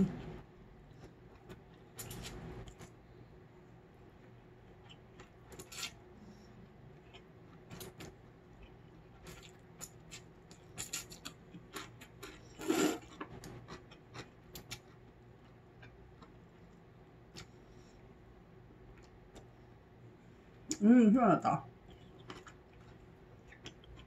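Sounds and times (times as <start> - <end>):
chewing mouth clicks and smacks: 21.8 - 24.0.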